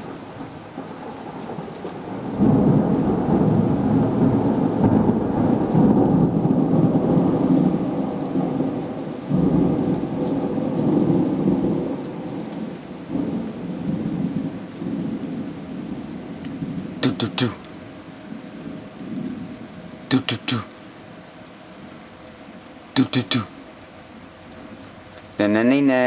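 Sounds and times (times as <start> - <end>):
thunder rumbling: 0.0 - 17.7
falling rain: 0.0 - 26.0.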